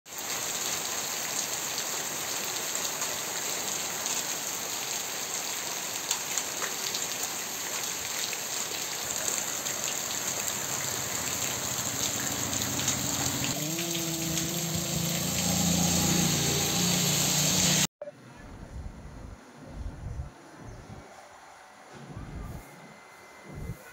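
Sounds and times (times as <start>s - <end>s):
heavy rain on a paved road: 0.1s - 17.9s
vehicle engine hum approaching: 10.9s - 17.9s.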